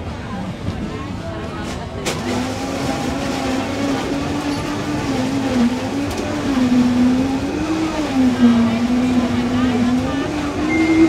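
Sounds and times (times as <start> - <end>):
street background noise: 0.0 - 11.0.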